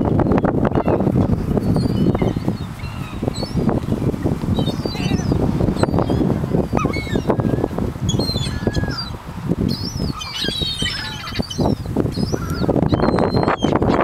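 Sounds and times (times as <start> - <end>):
gulls flapping wings: 0.0 - 14.0
gull calls: 4.6 - 6.2, 6.8 - 9.1, 9.8 - 14.0.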